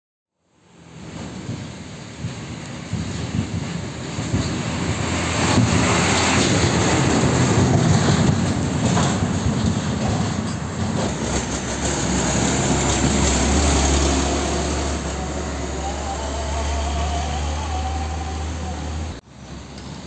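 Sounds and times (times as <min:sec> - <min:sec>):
truck engine low drone: 0:00.4 - 0:20.0
truck driving past: 0:00.6 - 0:20.0
trailer knocks and rattles: 0:01.1 - 0:15.4.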